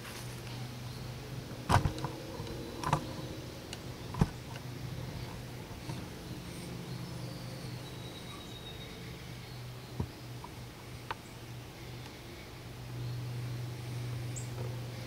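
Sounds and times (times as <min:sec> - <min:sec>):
steady low hum: 0:00.0 - 0:15.0
sharp clicks or knocks: 0:01.7 - 0:03.1.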